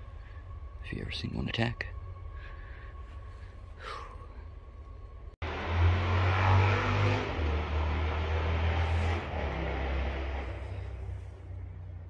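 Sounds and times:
vehicle driving by: 5.4 - 12.0.

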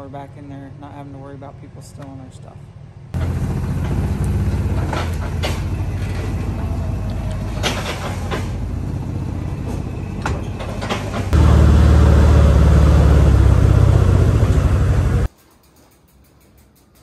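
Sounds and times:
vehicle engine rumble: 2.8 - 15.3
knocks and rattles: 3.2 - 6.6.

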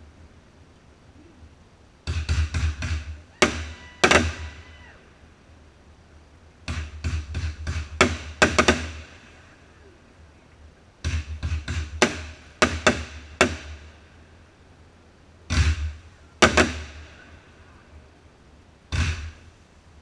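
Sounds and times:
fireworks bangs and thumps: 2.0 - 4.6, 6.6 - 9.4, 11.0 - 14.0, 15.5 - 17.3.

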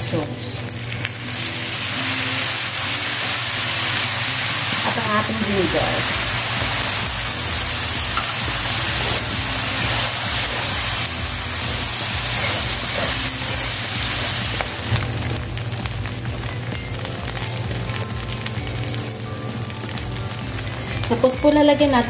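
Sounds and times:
meat sizzling in oiled pan: 0.0 - 22.0
sauce hitting hot pan: 2.3 - 16.4.

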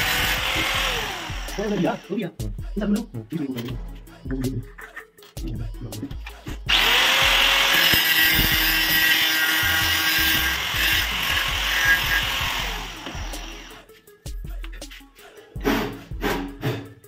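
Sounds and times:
angle grinder cutting metal pipe: 0.0 - 2.2, 6.7 - 13.8.

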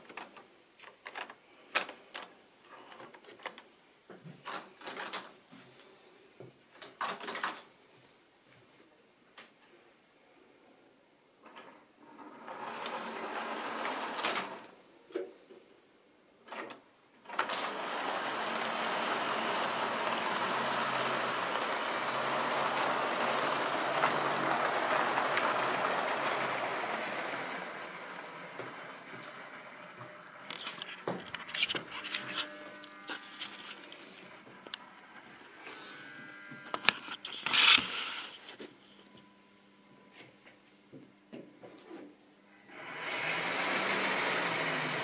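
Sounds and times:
model train rumbling past: 17.6 - 30.0.

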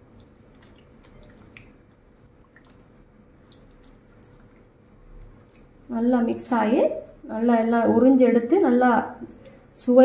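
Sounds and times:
hand squelching wet marinade: 0.0 - 7.2.

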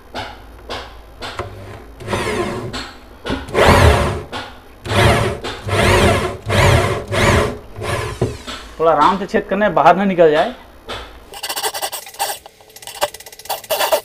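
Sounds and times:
electric drill boring into wood: 3.5 - 4.2, 4.9 - 8.8.

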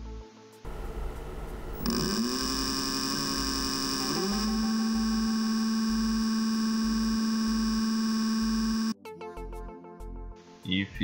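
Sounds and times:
electric motor whine: 0.7 - 9.0
slow low pulsing: 0.7 - 9.0.

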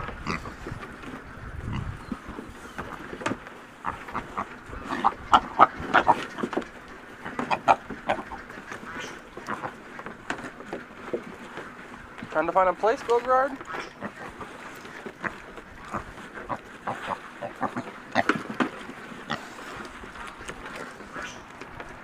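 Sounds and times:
pigs grunting and squealing: 0.0 - 0.8, 3.8 - 6.5, 7.2 - 9.9, 13.5 - 19.8.

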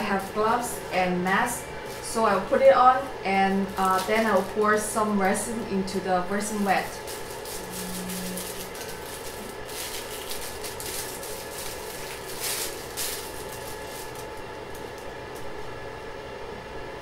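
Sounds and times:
face mask wrapper crinkling: 3.5 - 4.6, 6.9 - 15.2.

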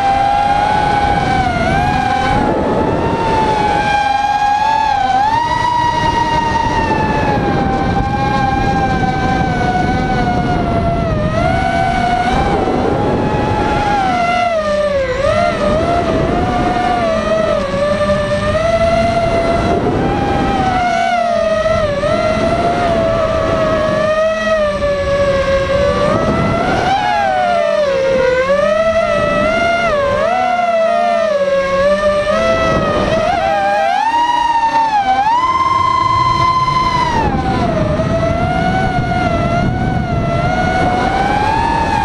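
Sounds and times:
quadcopter motors whining: 0.0 - 42.0.

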